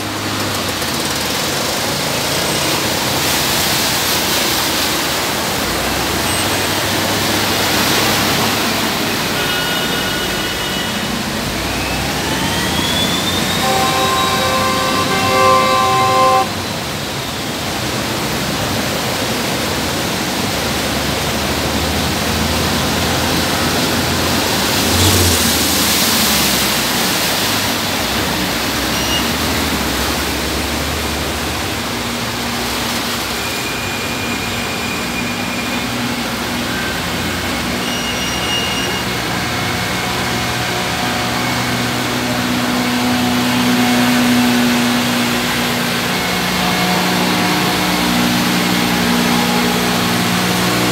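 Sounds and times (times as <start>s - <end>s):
vehicle engines running: 0.0s - 33.4s
tyres churning through water: 0.0s - 50.9s.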